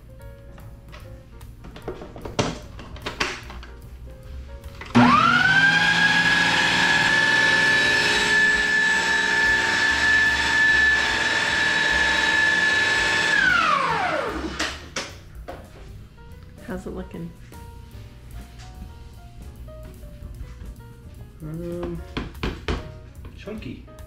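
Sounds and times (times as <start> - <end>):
blender motor whining: 4.9 - 14.8.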